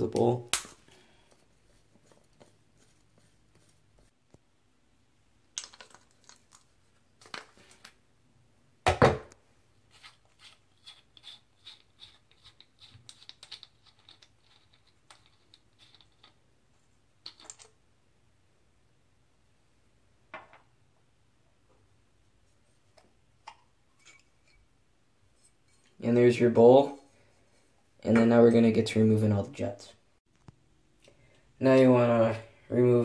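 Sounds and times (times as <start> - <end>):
screwdriver clicking and scraping metal: 10.0 - 16.4.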